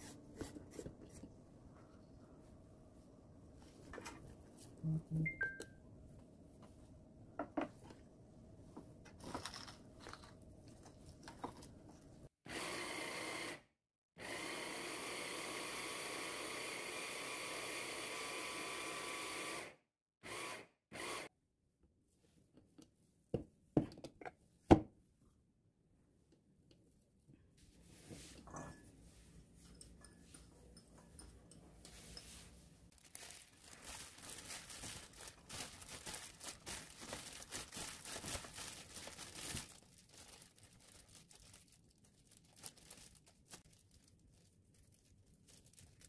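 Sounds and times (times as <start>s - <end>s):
hand blender motor whining: 14.2s - 21.3s.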